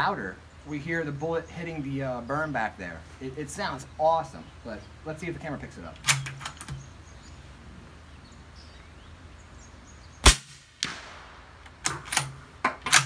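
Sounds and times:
suppressed rifle shot: 0:10.2 - 0:12.0
bullet striking dirt: 0:10.2 - 0:13.0.

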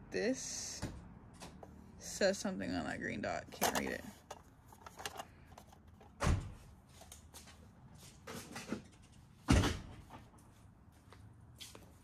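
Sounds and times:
toy train cars knocking: 0:03.5 - 0:05.2.

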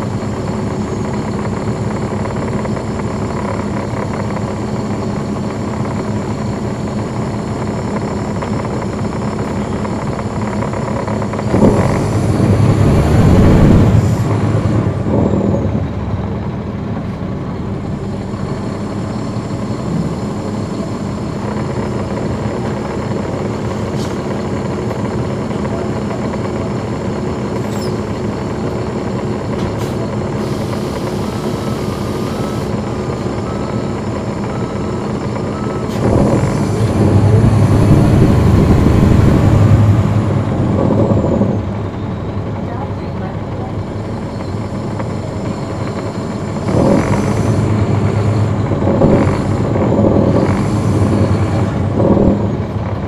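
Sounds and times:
bus diesel engine running: 0:00.0 - 0:53.0
rush of noise: 0:11.1 - 0:15.6, 0:36.0 - 0:41.7.

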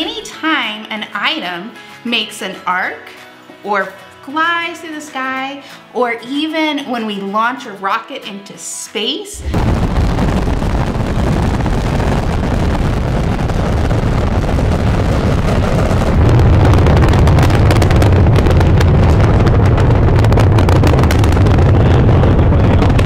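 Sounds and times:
ragged crackle: 0:09.4 - 0:23.0
rocket engines roaring: 0:09.4 - 0:23.0.

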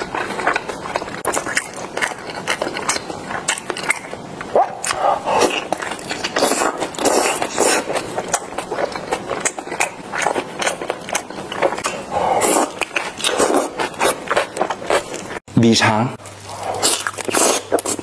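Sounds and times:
wet chewing: 0:00.0 - 0:15.4, 0:16.2 - 0:18.0
slurping: 0:04.8 - 0:15.3.

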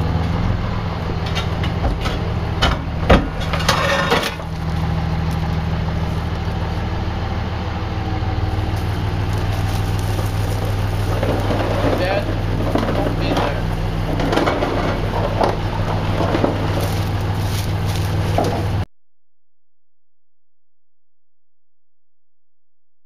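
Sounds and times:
engine idling: 0:00.0 - 0:18.9
scraping: 0:03.2 - 0:07.4, 0:08.4 - 0:18.9.

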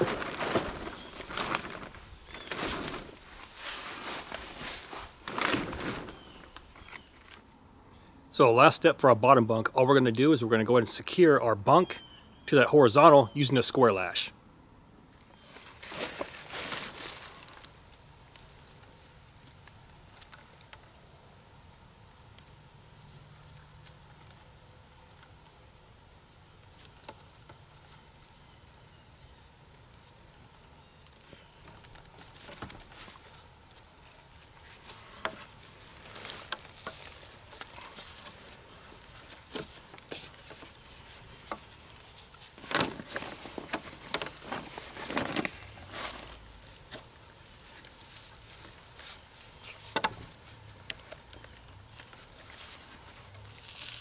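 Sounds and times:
cord rustling around wooden poles: 0:00.0 - 0:07.5, 0:15.1 - 0:54.0.

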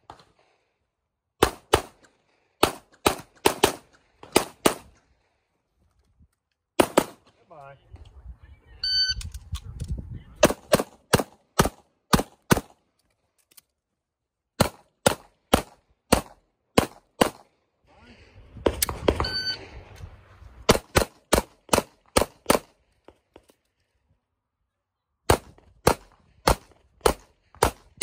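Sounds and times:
shot timer beep: 0:08.8 - 0:09.2, 0:19.2 - 0:19.6.

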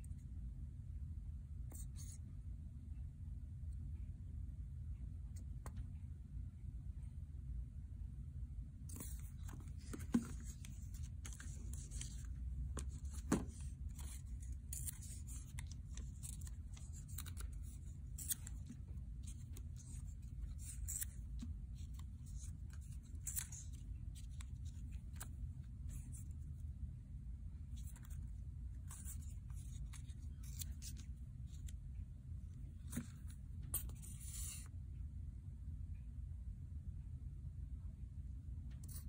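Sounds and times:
low steady hum: 0:00.0 - 0:39.0
paper rustling and tearing: 0:08.9 - 0:25.2.

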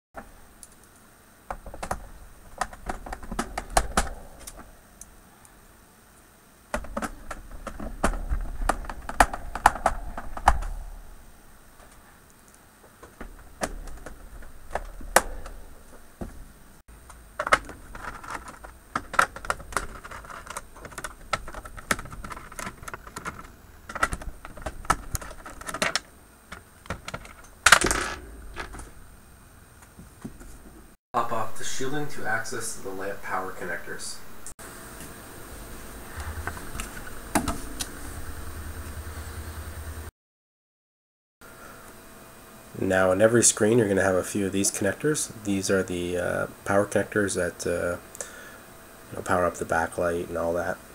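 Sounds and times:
rubbing and handling noise: 0:00.2 - 0:05.7, 0:06.7 - 0:29.2.

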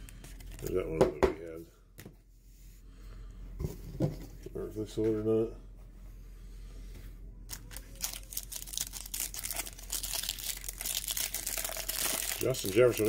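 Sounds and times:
foil wrapper tearing and crinkling: 0:07.5 - 0:13.0.

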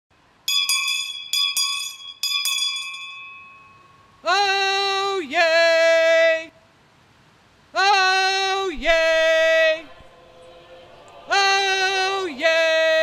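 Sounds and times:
handbell ringing: 0:00.5 - 0:04.0.

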